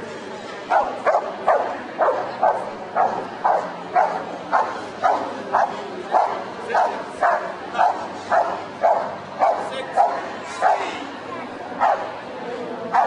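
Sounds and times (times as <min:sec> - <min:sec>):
dog barking: 0:00.7 - 0:10.9, 0:11.8 - 0:12.1.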